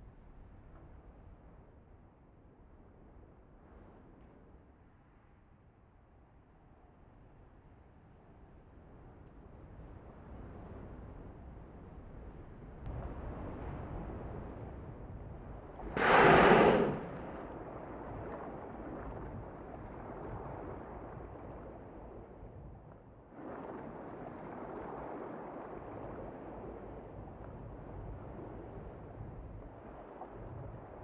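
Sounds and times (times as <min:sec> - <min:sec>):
low sea noise: 0:13.0 - 0:22.4, 0:23.2 - 0:31.0
whale blowing: 0:16.0 - 0:17.4.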